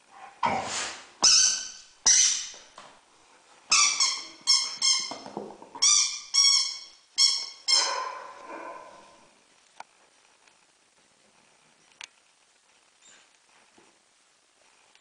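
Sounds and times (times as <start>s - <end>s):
rubber squeaky toy squeaking: 1.2s - 2.5s, 3.7s - 7.9s.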